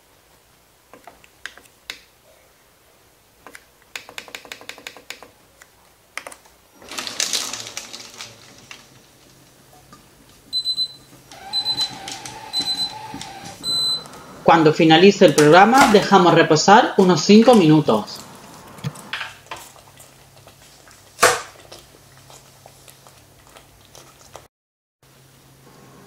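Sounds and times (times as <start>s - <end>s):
short high beeps: 13.6s - 14.1s.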